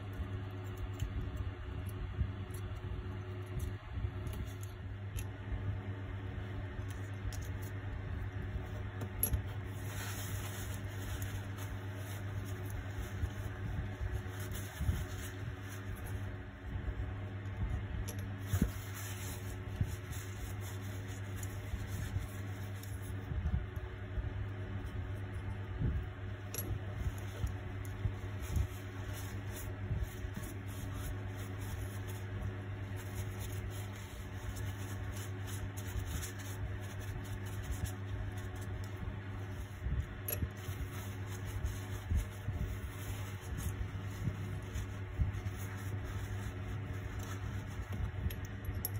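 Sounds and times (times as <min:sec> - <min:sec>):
low electrical hum: 0:00.0 - 0:48.9
tissue rustling: 0:08.6 - 0:16.7, 0:17.3 - 0:23.3, 0:26.3 - 0:48.7.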